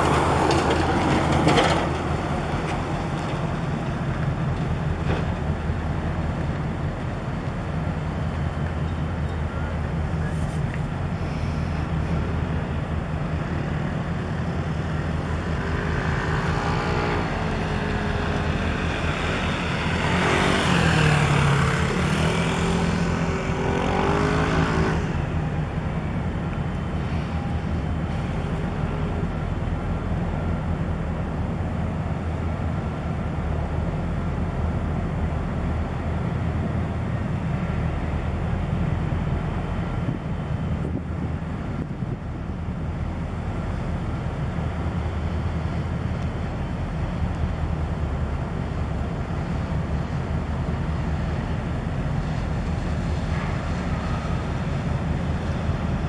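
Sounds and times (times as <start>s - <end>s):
low engine hum: 0.0s - 56.0s
passing motor vehicle: 0.0s - 56.0s.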